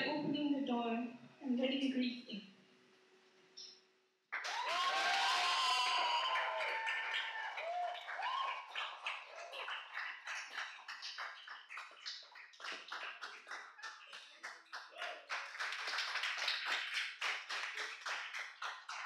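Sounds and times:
audience applauding: 0:04.3 - 0:19.0.

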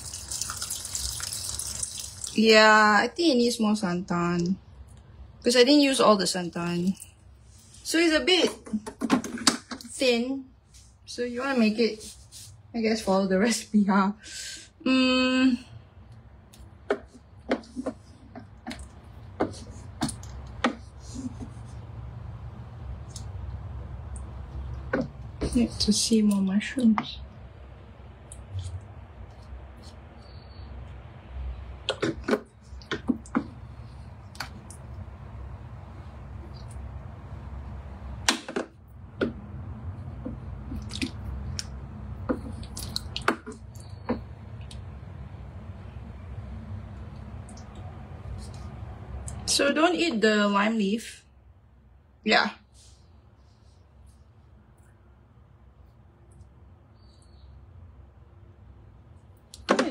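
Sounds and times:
liquid sloshing and dripping: 0:00.0 - 0:02.4, 0:40.3 - 0:44.8
low steady hum: 0:00.0 - 0:59.9.

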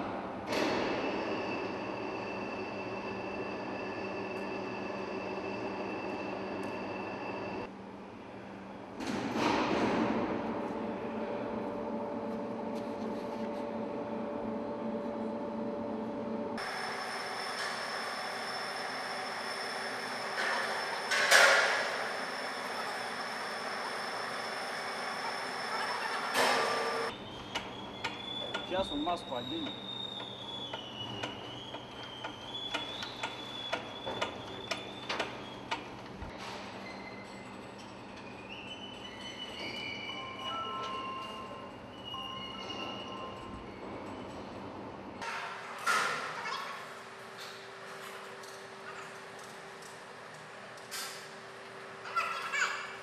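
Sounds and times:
crane mechanical hum: 0:00.0 - 0:09.3, 0:10.0 - 0:53.0
steady high whine: 0:11.5 - 0:27.1.

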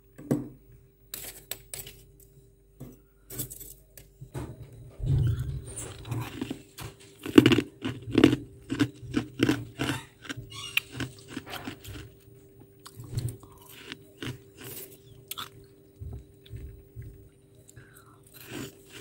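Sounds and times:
frost being chewed with crunches: 0:05.9 - 0:19.0.

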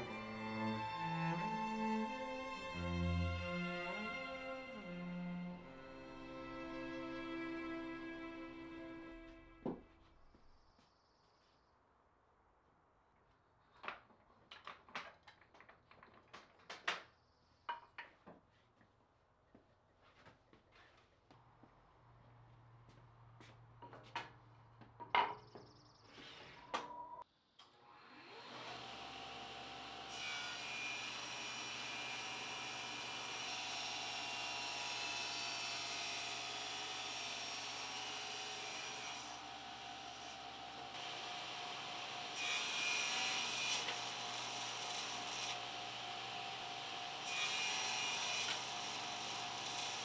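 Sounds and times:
power tool whirring: 0:27.8 - 0:34.7.

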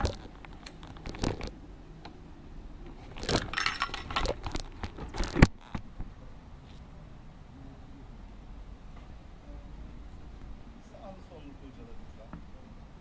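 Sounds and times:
small metal objects jingling: 0:03.4 - 0:04.2.

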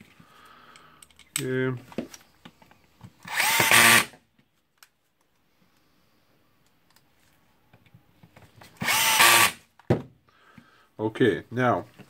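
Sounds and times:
cordless drill driving screw: 0:03.2 - 0:04.2, 0:08.8 - 0:09.6.

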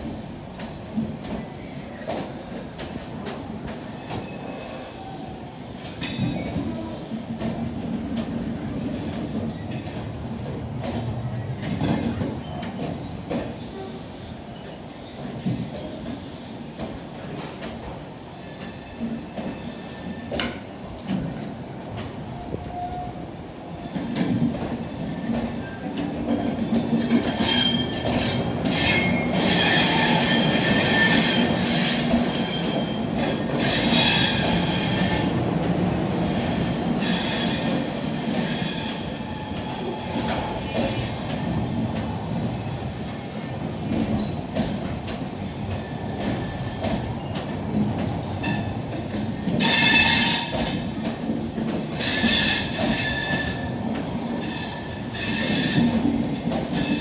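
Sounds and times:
train wheels squealing: 0:01.3 - 0:02.8, 0:03.8 - 0:06.7, 0:18.3 - 0:20.4, 0:22.4 - 0:35.3, 0:36.2 - 0:41.7, 0:45.5 - 0:47.6, 0:48.4 - 0:51.0, 0:51.6 - 0:57.0.

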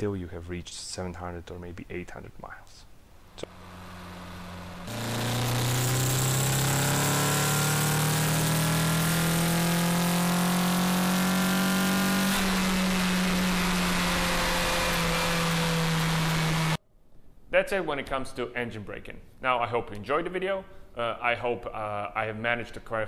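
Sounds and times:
car engine revving: 0:03.4 - 0:16.8.

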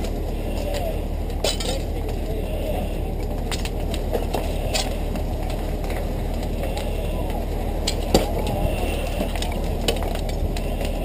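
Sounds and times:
fire crackling and popping: 0:00.0 - 0:11.0
low rumble of fire: 0:00.0 - 0:11.0.

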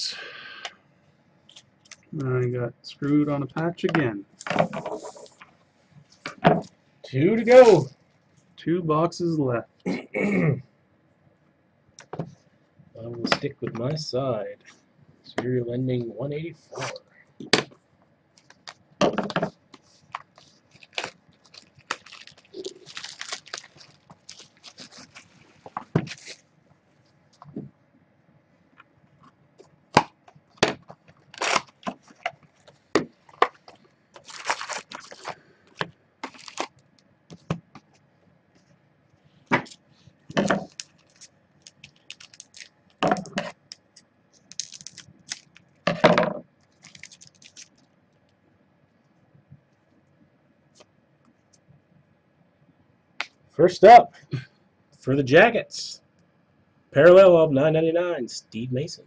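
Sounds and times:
packs knocking on table: 0:19.0 - 0:19.5
foil packs crinkling and tearing: 0:20.1 - 0:26.4, 0:31.2 - 0:32.7, 0:33.3 - 0:36.8, 0:40.6 - 0:43.0, 0:44.4 - 0:45.6, 0:46.7 - 0:47.8.

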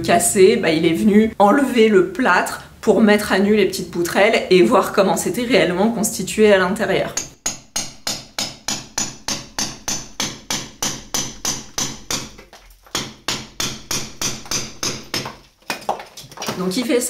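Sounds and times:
hammer striking chisel: 0:07.1 - 0:16.1.

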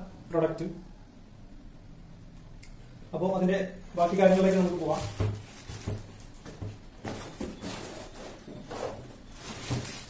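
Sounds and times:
plastic wrapping crinkling: 0:03.9 - 0:10.0.

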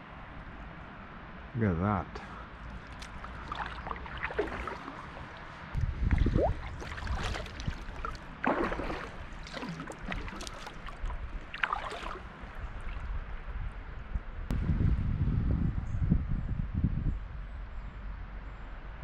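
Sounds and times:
paddle splashing in water: 0:02.6 - 0:13.2.

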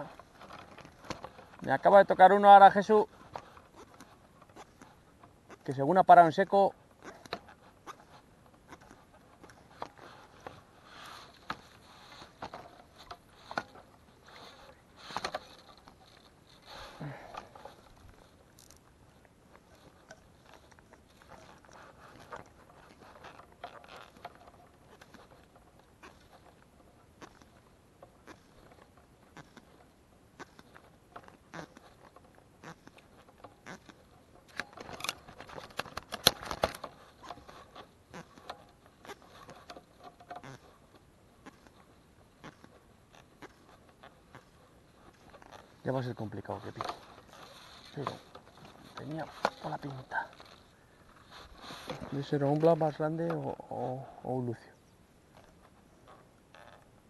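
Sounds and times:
fly line clicking and rustling: 0:00.0 - 0:57.0
fly line clicks: 0:30.4 - 0:53.5.

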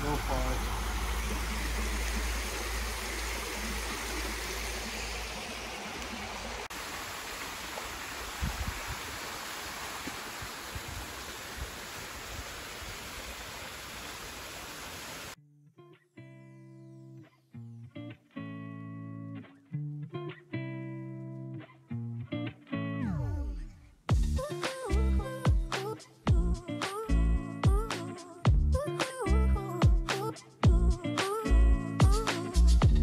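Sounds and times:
guitar music: 0:15.4 - 0:23.7.

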